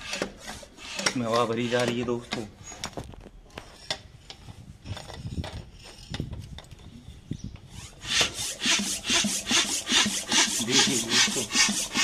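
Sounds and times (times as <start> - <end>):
hand pump strokes: 0.0 - 2.6, 7.6 - 12.0.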